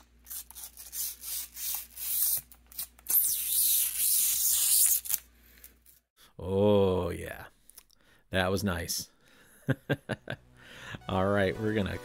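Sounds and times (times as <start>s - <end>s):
plastic film peeling: 0.3s - 6.0s.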